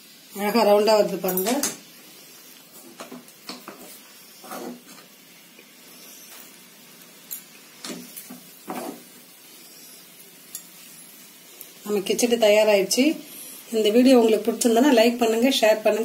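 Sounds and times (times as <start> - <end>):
steady low hiss: 0.0 - 16.0.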